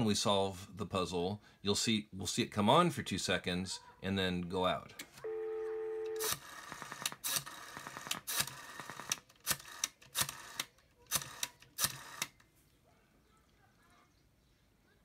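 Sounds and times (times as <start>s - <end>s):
telephone dial tone: 5.2s - 10.6s
rotary dial clicking and whirring: 6.2s - 12.4s.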